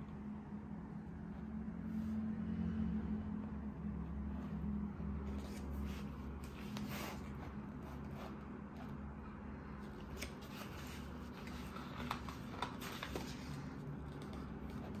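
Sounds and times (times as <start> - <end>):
steady low hum: 0.0 - 15.0
paper pages flipping: 5.2 - 9.0, 9.9 - 15.0.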